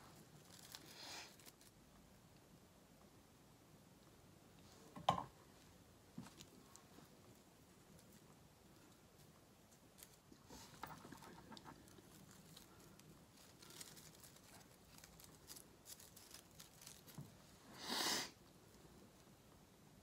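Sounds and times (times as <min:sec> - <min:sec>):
ribbon and greenery rustling: 0:00.0 - 0:02.0, 0:05.6 - 0:17.8.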